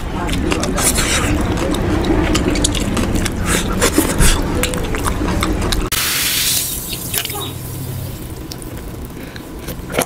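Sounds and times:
wet eating squelches: 0:00.0 - 0:10.0.

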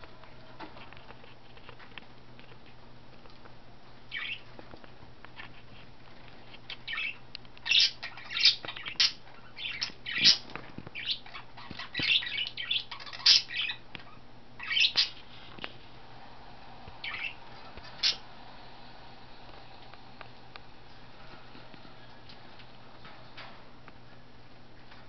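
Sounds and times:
budgies chirping: 0:04.1 - 0:04.5, 0:06.7 - 0:15.2, 0:17.0 - 0:18.3.

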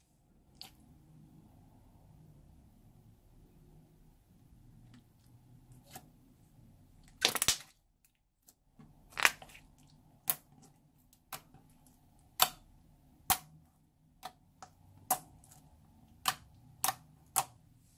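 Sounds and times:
slime popping when squeezed: 0:07.2 - 0:07.7.

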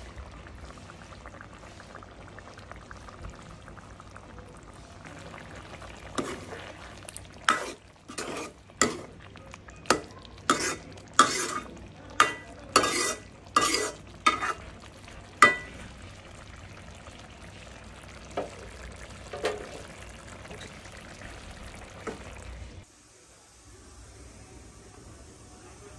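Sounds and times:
metal spatula scraping a pan: 0:06.2 - 0:06.6, 0:07.4 - 0:09.1, 0:09.9 - 0:14.7.

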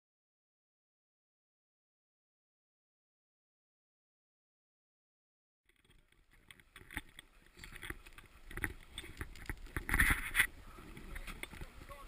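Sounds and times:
diving gear clicks and knocks: 0:05.7 - 0:12.0.

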